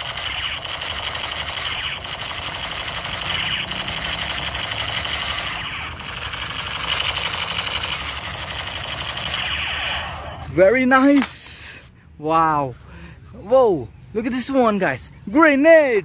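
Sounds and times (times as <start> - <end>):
toy gun machine-gun sound effect: 0.0 - 10.5.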